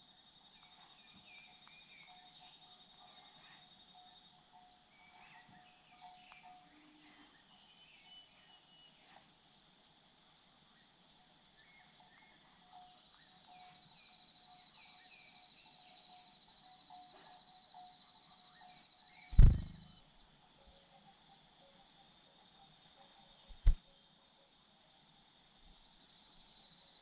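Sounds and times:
insects: 0:00.0 - 0:27.0
bird chirps: 0:00.2 - 0:20.1
bird wings thump: 0:19.4 - 0:19.9, 0:23.5 - 0:23.8.

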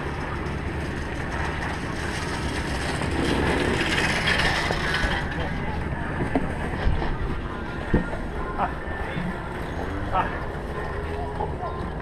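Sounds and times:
kart engine rumbling: 0:00.0 - 0:12.0.

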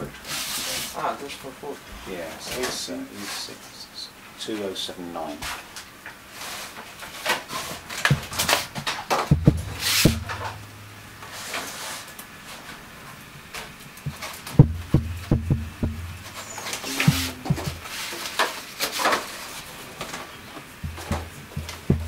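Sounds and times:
low hum: 0:09.3 - 0:11.6, 0:14.0 - 0:17.9.

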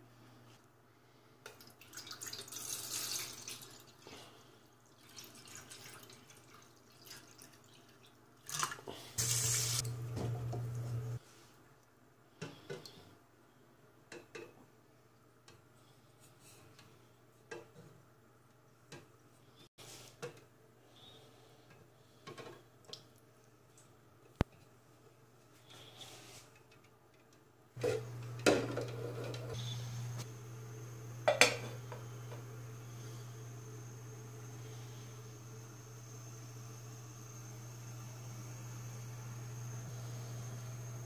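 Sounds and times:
tap water running into sink: 0:08.5 - 0:10.8
low hum: 0:27.8 - 0:41.0.

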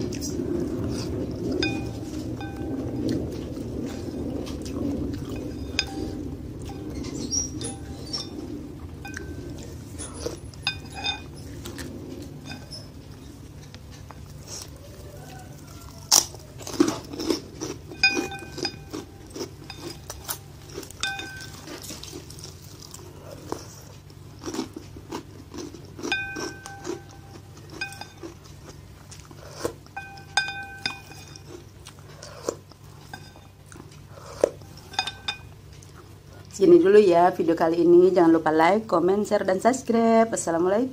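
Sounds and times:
chewing and crunching: 0:00.0 - 0:36.7
bowl ringing: 0:01.5 - 0:03.3, 0:05.0 - 0:13.4, 0:17.9 - 0:21.8, 0:26.0 - 0:28.4, 0:29.9 - 0:31.6, 0:33.0 - 0:33.6, 0:34.6 - 0:35.6
wooden utensils knocking on bowl: 0:30.0 - 0:31.4.

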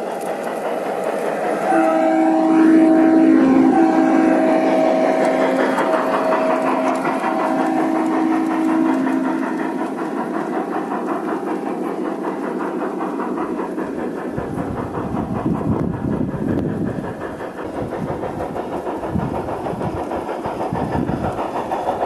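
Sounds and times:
wheels clicking over rail joints: 0:00.0 - 0:22.0
model train horn chord: 0:01.6 - 0:09.4.

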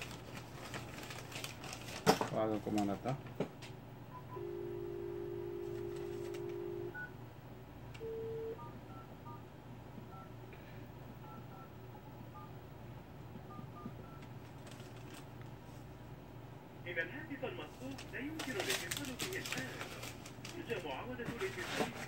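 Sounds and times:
telephone dial tone: 0:04.3 - 0:07.1, 0:08.0 - 0:09.0.

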